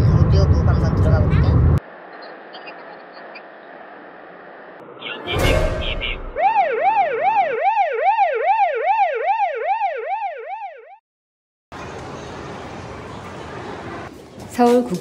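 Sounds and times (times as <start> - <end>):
wailing siren alarm effect: 2.1 - 11.0
crash-like hit: 5.3 - 6.4.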